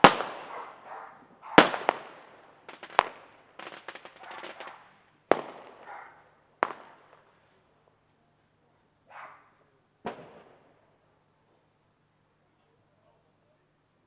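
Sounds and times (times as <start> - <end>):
fireworks bangs: 0.0 - 7.4, 10.0 - 10.9
fireworks crackling: 0.0 - 8.6.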